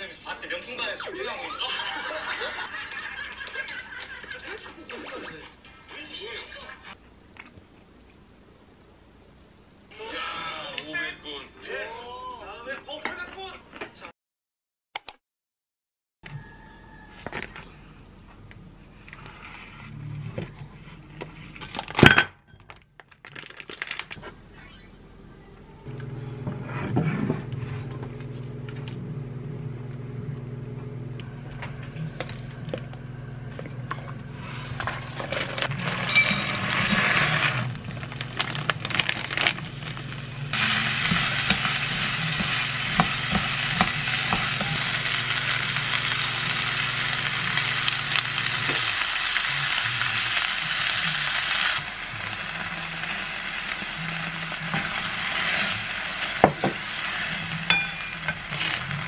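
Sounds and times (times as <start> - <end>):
spatula stirring: 34.5 - 39.9, 40.5 - 46.1
rice sizzling in frying pan: 34.9 - 59.0.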